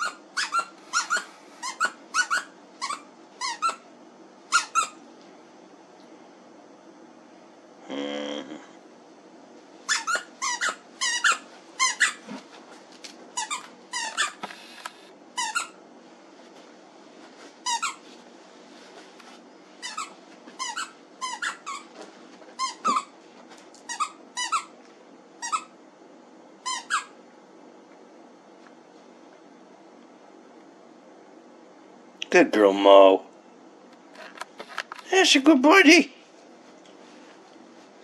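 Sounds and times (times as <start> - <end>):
squeaky toy squeaking: 0.0 - 3.8, 4.5 - 5.0, 9.9 - 12.2, 13.4 - 14.4, 15.4 - 15.8, 19.8 - 21.9, 22.6 - 23.1, 23.9 - 24.7, 25.4 - 25.7, 26.6 - 27.1.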